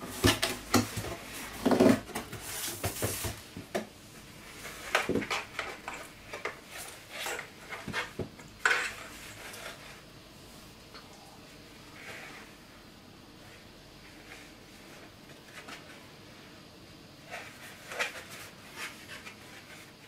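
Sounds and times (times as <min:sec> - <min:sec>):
rustling of cardboard and fabric: 0:00.0 - 0:10.8, 0:11.8 - 0:20.0.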